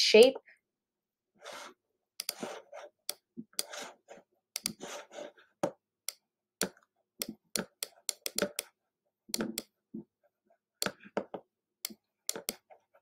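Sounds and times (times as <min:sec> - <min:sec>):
stylus tapping on touchscreen: 0:05.6 - 0:08.7.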